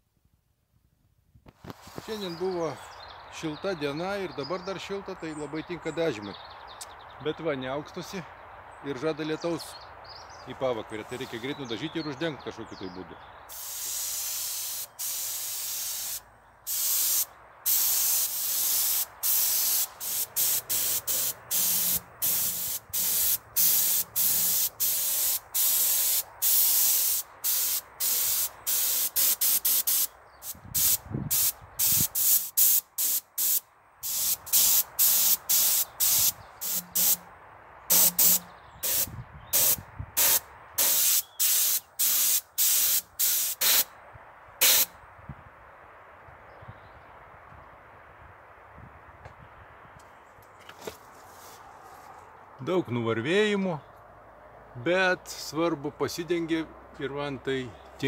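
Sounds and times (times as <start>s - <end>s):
paint spray gun hissing: 13.5s - 37.2s, 37.9s - 43.9s, 44.6s - 44.9s.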